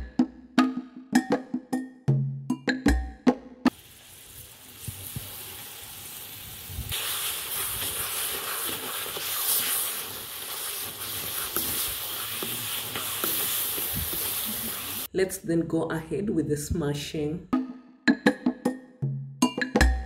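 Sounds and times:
potatoes sizzling in a pan: 3.7 - 15.1.

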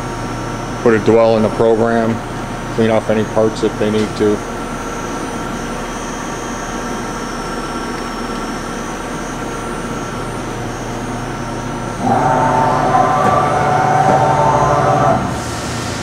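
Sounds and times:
machine humming: 0.0 - 16.0
machine whine: 0.0 - 16.0.

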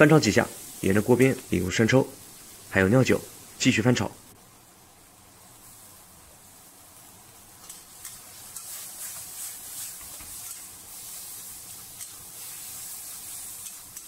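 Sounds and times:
meat sizzling in a wok: 0.0 - 3.6, 4.4 - 14.0
metal spatula scraping a wok: 7.6 - 14.0.

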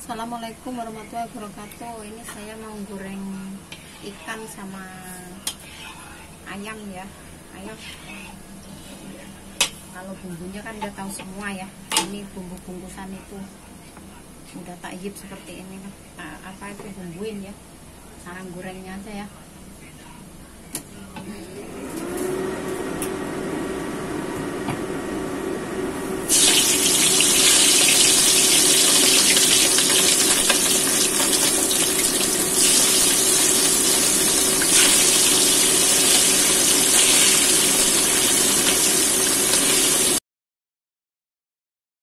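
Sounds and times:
chicken sizzling in hot oil: 26.2 - 40.2
oil hissing in a wok: 26.3 - 40.2.

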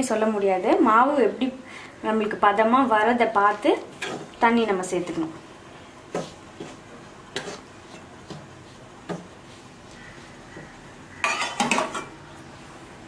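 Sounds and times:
spoon stirring in a pan: 3.4 - 4.5, 5.9 - 12.2.

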